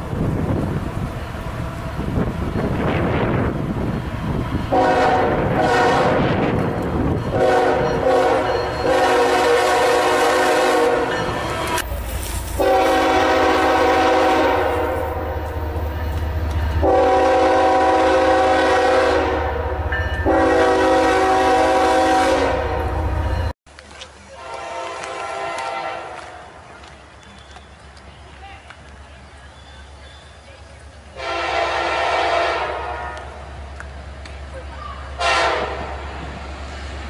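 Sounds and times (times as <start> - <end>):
passing train rumble: 0.0 - 37.0
locomotive air horn blasts: 4.7 - 6.5, 7.3 - 11.3, 12.5 - 15.4, 16.8 - 23.2, 24.4 - 26.3, 31.2 - 33.4, 35.2 - 36.1.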